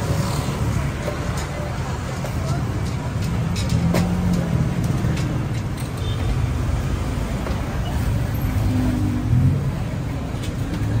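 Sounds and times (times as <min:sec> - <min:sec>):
car and motorbike engines passing: 0:03.3 - 0:05.7, 0:06.4 - 0:11.0.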